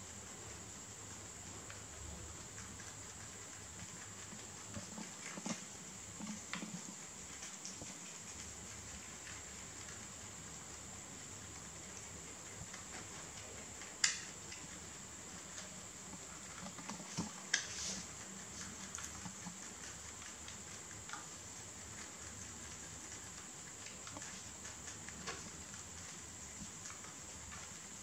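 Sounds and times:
rabbits chewing leaves: 0.0 - 28.0
steady hiss: 0.0 - 28.0.

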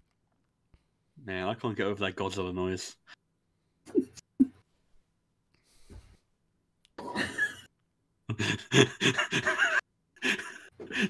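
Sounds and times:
man chuckling: 8.3 - 11.0.

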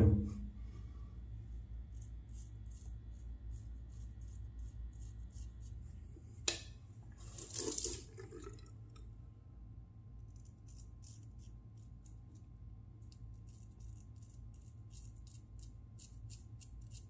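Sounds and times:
razor scraping stubble: 1.9 - 5.8, 13.1 - 17.0.

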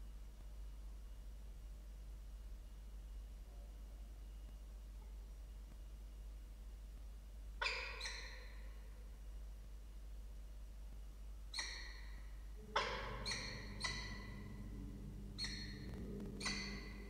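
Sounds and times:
low steady hum: 8.5 - 17.0
falcon calls: 11.6 - 17.0.

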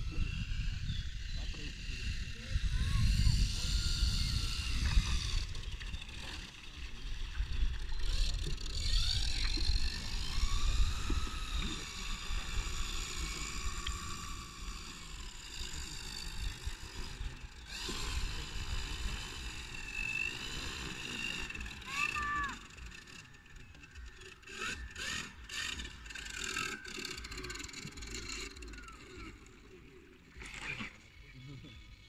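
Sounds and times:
wind rumble on microphone: 0.0 - 21.8
electric motor and propeller whining: 0.0 - 32.0.

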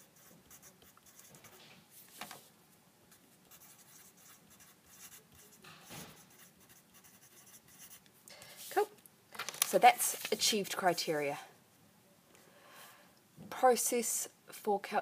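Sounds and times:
pen scratching on paper: 0.0 - 1.6, 3.5 - 8.0.

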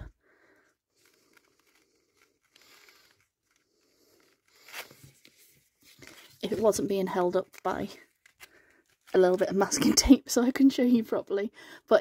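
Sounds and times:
fabric rustling: 0.8 - 9.6.

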